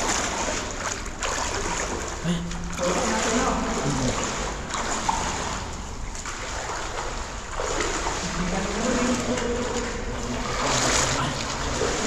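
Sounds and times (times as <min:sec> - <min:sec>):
water splashing and sloshing: 0:00.0 - 0:12.0
person's voice: 0:02.2 - 0:04.3.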